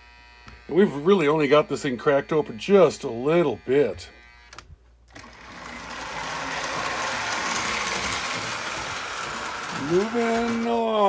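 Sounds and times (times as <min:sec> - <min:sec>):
toy train motor whirring: 0:00.0 - 0:11.0
wheels rolling on rails: 0:05.1 - 0:11.0.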